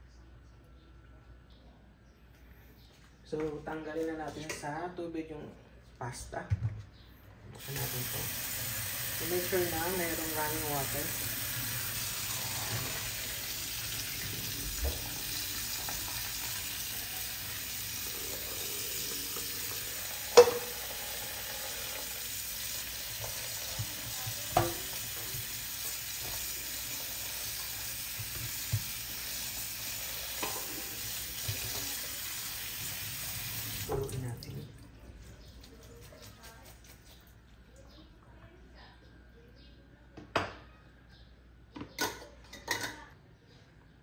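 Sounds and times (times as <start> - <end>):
water hissing: 7.6 - 34.1
cookware clank: 20.3 - 20.8
cookware clinks and knocks: 41.8 - 43.1.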